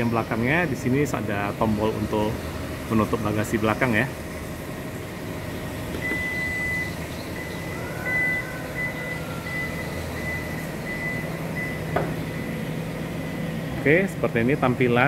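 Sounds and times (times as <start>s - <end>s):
warning beeps: 6.0s - 12.6s.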